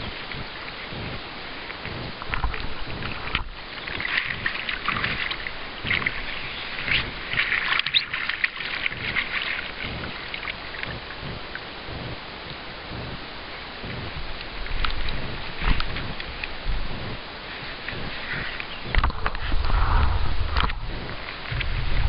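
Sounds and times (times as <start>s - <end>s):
fish splashing in water: 0.0s - 12.3s.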